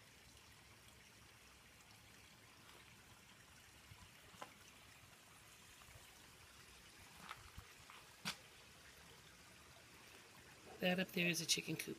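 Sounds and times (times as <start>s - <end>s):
water trickling over rocks: 0.0s - 11.9s.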